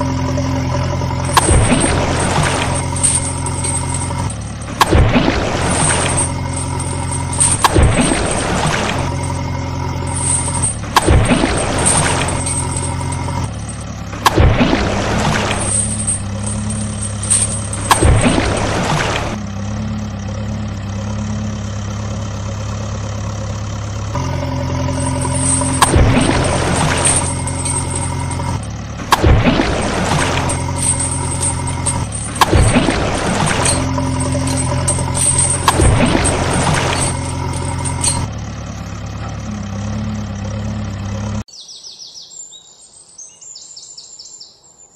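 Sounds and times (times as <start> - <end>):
heavy engine idling: 0.0 - 41.5
thick mud splashing: 1.2 - 9.5, 14.2 - 19.4, 24.8 - 38.0
small birds chirping: 41.5 - 44.9.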